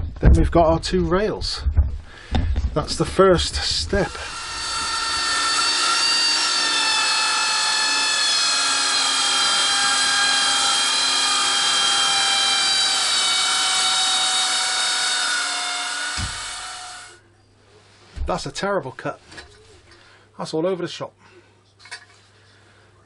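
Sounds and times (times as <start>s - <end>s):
chop saw grinding steel: 3.4s - 17.2s
thud: 16.2s - 16.4s.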